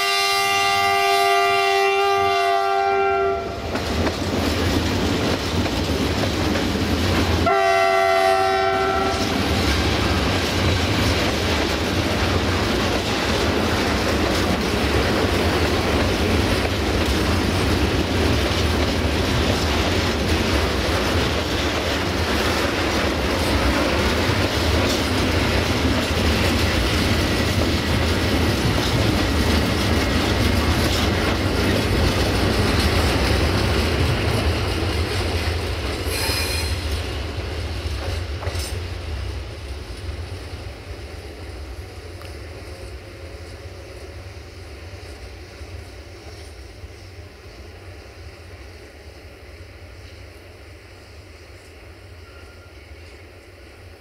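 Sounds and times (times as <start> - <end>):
locomotive horn: 0.0 - 3.7, 7.4 - 9.5.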